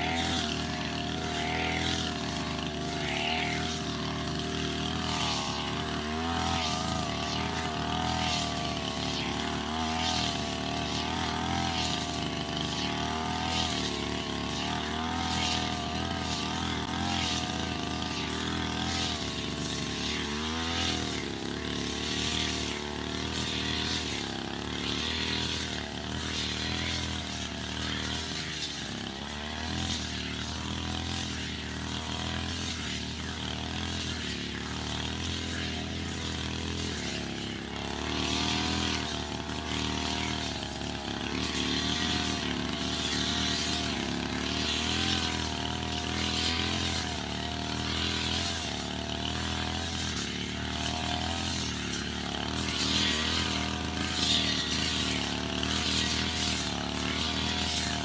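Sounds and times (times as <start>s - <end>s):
brush cutter engine cutting grass: 0.0s - 58.0s.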